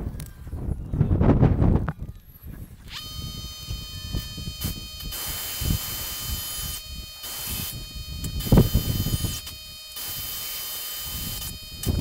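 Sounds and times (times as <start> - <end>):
band saw motor whine: 2.8 - 12.0.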